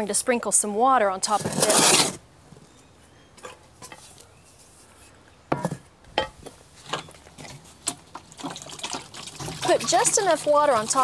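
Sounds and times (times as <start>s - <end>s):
shovel scraping wet sand: 1.2s - 2.2s.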